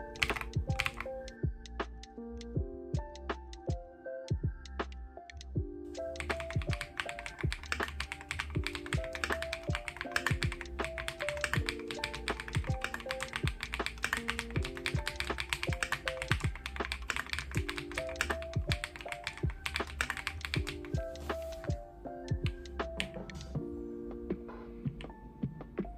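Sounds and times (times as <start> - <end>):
fast mechanical keyboard typing: 0.0 - 1.1, 6.0 - 21.7
background music: 0.0 - 25.9.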